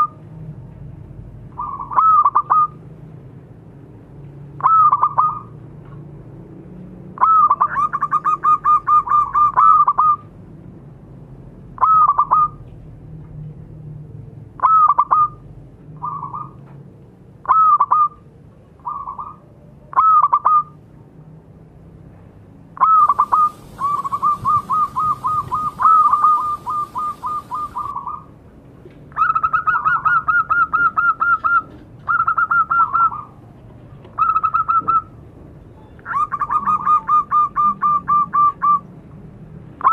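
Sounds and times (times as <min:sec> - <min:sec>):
dove cooing in staccato notes: 0:22.8 - 0:28.2.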